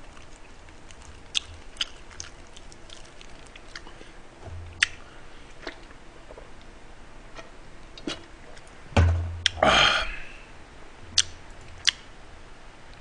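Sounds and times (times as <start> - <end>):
heavy thump on table: 9.0 - 9.4
breathy exhale: 9.6 - 10.5.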